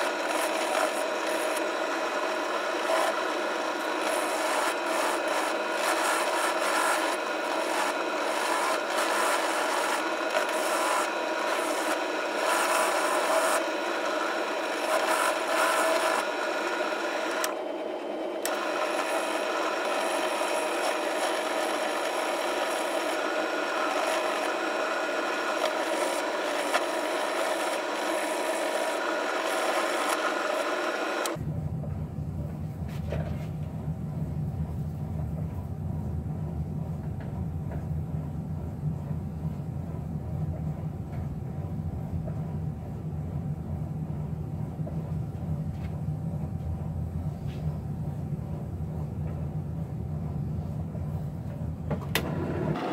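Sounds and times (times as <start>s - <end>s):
drill press motor hum: 0.0s - 32.5s, 50.2s - 52.9s.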